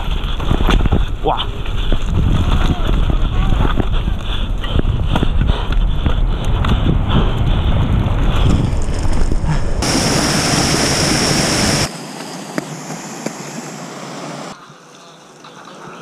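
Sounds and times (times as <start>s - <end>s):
bike tyre rumble on dirt: 0.0s - 11.9s
wind buffeting microphone: 0.0s - 11.9s.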